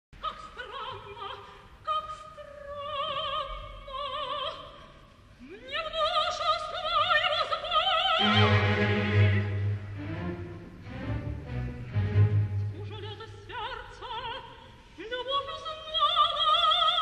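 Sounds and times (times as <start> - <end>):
soprano singing opera: 0.2 - 9.6, 12.7 - 17.0.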